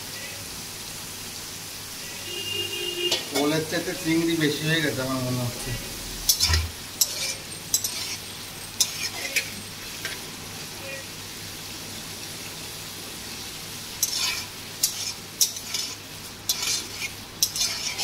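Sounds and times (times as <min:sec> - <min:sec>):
prawns sizzling in oil: 0:00.0 - 0:18.0
spatula scraping pan: 0:06.2 - 0:10.2, 0:14.0 - 0:18.0.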